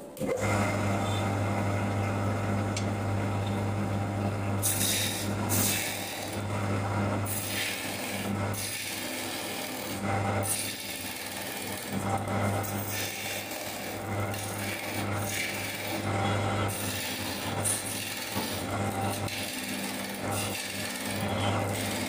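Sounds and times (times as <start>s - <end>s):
electric wood lathe humming: 0.0s - 22.0s
chisel scraping spinning wood: 4.6s - 6.5s, 7.2s - 22.0s.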